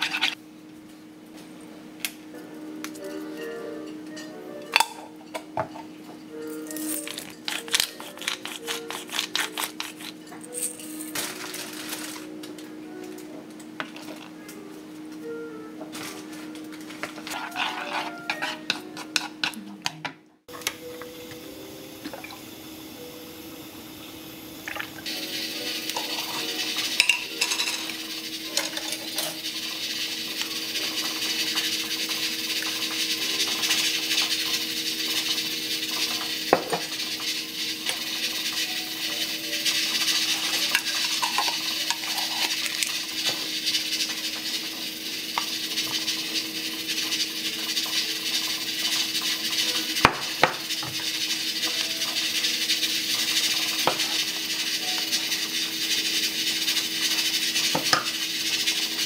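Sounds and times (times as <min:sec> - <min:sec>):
wooden spoon scraping bowl: 0:00.0 - 0:00.4, 0:16.9 - 0:19.6.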